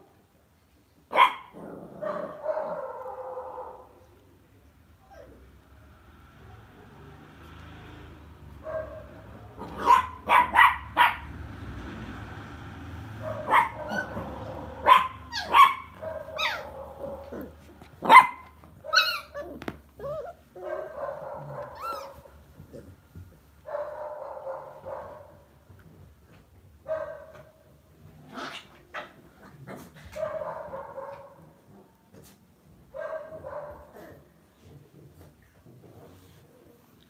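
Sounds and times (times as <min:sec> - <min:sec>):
dogs barking and yapping: 0:01.1 - 0:04.1, 0:08.4 - 0:26.0, 0:26.8 - 0:34.7.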